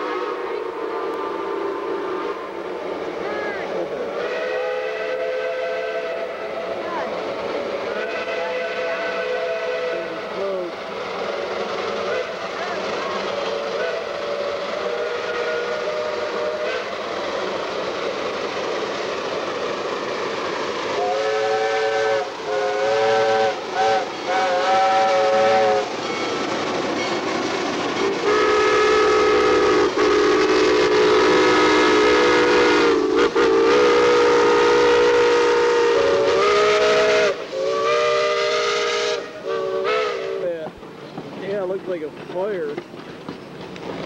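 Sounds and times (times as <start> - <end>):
steam whistle blasts: 0.0 - 2.4, 4.1 - 6.8, 7.9 - 10.7, 11.3 - 12.4, 13.3 - 17.0, 20.9 - 26.3, 28.2 - 40.6
steady hiss of steam: 0.0 - 44.0.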